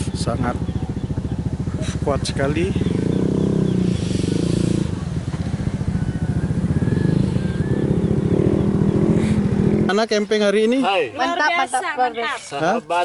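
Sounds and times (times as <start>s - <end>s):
small engine running: 0.0s - 9.8s.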